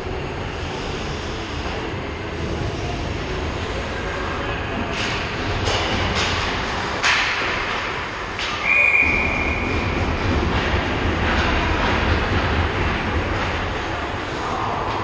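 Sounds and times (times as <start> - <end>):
arena noise rumble: 0.0 - 15.0
referee's whistle: 8.6 - 9.6.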